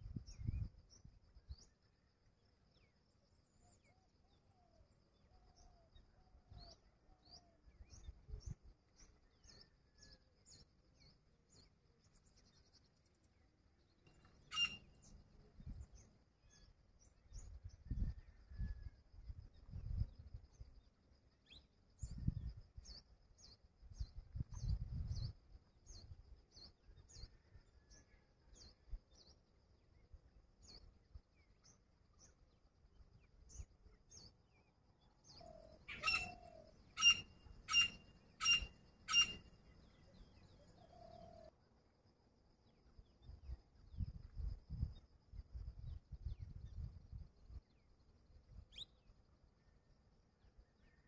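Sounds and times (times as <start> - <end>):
faint high chirps: 14.0 - 20.7, 35.3 - 41.4
bird calling sharp notes: 14.5 - 14.9, 35.9 - 39.4.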